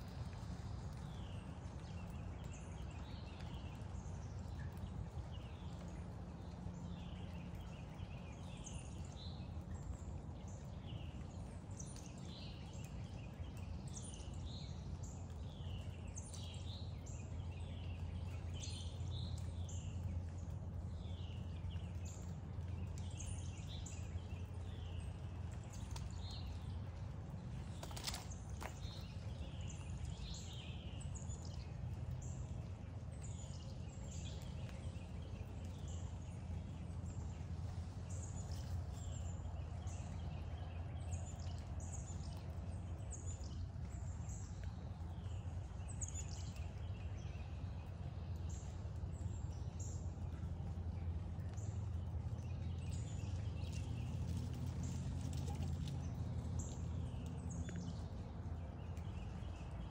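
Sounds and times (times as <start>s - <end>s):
birds chirping: 0.0s - 59.9s
steady low rumble: 0.0s - 59.9s.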